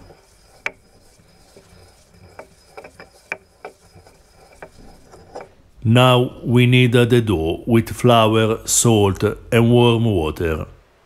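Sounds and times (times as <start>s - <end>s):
stone tapping on stone: 0.0s - 5.5s
pestle rubbing in mortar: 0.0s - 6.4s.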